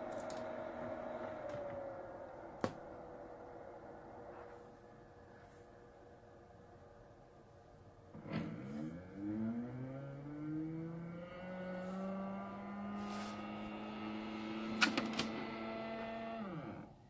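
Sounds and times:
stepper motors whining: 8.4s - 17.0s.

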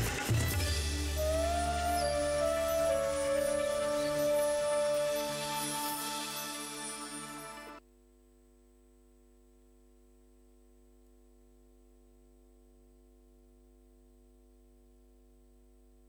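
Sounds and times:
faint steady hum: 7.8s - 16.0s.

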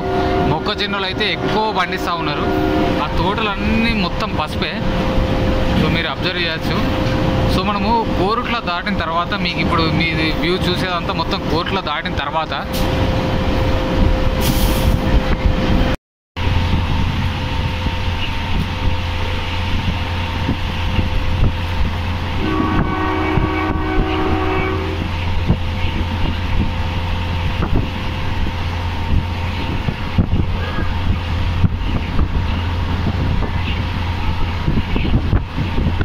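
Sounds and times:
train horn: 0.0s - 3.7s, 22.4s - 25.2s
rail and wind noise: 0.0s - 36.0s
train engine hum: 0.0s - 36.0s.

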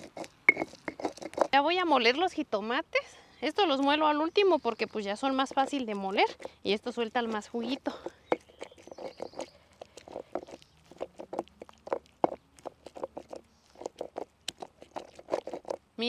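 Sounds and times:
stone pestle grinding in mortar: 0.0s - 1.6s, 4.9s - 16.0s.

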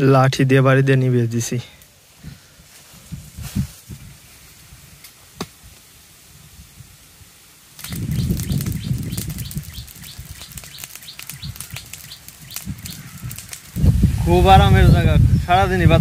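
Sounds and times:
wind buffeting microphone: 2.2s - 16.0s
faint clicks: 7.8s - 13.8s.

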